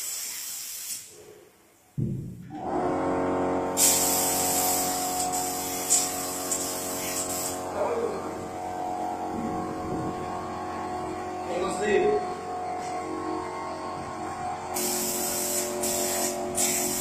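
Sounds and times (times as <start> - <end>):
paint spray gun hissing: 0.0 - 1.1, 3.8 - 7.7, 14.8 - 17.0.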